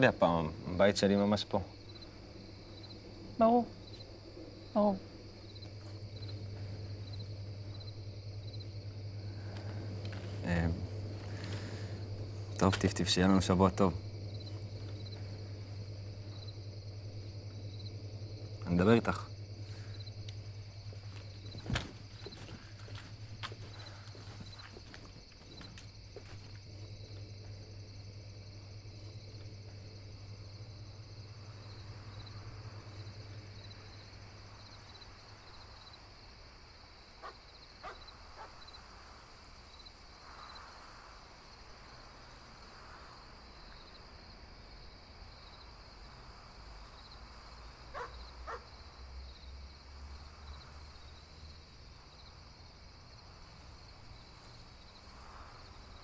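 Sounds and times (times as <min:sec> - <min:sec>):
low hum: 0:00.0 - 0:24.8, 0:25.8 - 0:35.4
crickets chirping: 0:00.0 - 0:56.0.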